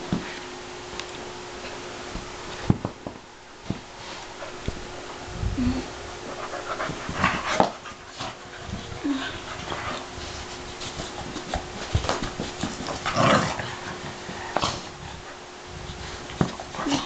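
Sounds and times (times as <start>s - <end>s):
dogs playing noisily: 0.0s - 17.0s
dogs scuffling: 6.2s - 17.0s.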